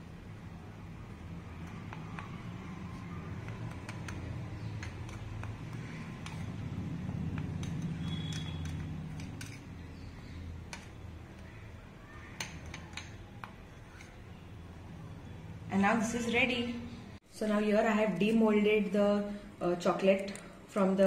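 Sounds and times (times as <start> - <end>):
spoon scraping plastic bowl: 1.7 - 11.0, 12.4 - 14.2.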